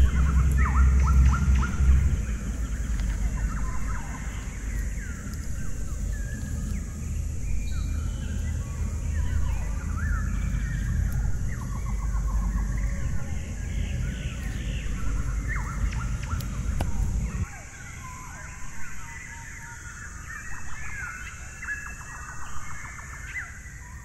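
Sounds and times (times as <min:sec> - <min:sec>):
low rumble: 0:00.0 - 0:19.0
birds chirping and trilling: 0:00.0 - 0:24.0
steady high hiss: 0:00.0 - 0:24.0.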